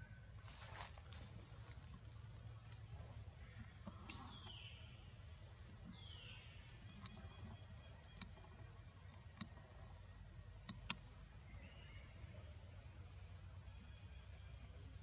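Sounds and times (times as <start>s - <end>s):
sharp ticks: 10.6s - 11.1s.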